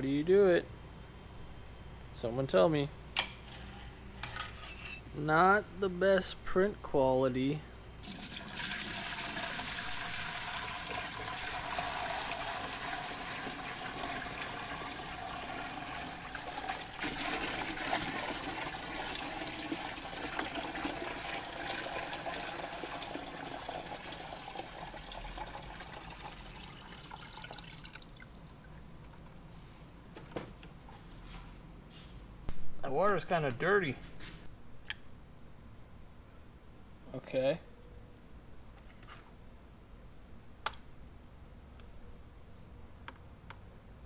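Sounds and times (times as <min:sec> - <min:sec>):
water running and splashing: 0:08.0 - 0:28.8.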